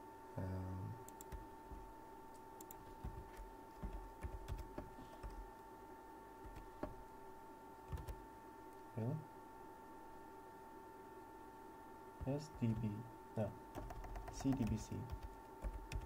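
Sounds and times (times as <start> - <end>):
typing on keyboard: 1.1 - 1.4, 2.6 - 5.4, 6.4 - 7.0, 7.9 - 8.2, 13.7 - 16.0.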